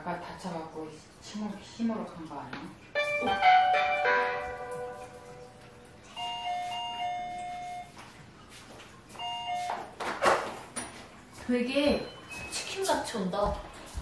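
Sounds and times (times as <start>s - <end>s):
electronic doorbell chime: 6.1s - 8.0s, 9.2s - 9.9s.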